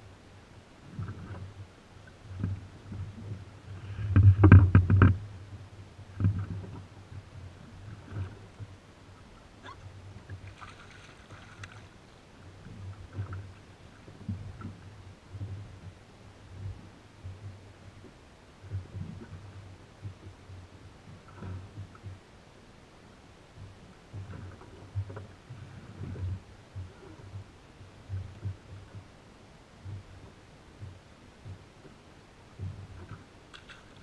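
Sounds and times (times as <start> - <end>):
water lapping against hull: 0.0 - 34.0
knocks and slaps on hull: 4.0 - 5.3.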